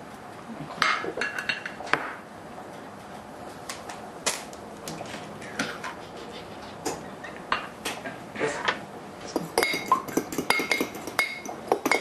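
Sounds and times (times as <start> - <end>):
eggs cracking against dish: 9.3 - 12.0
fork beating eggs in dish: 9.3 - 12.0.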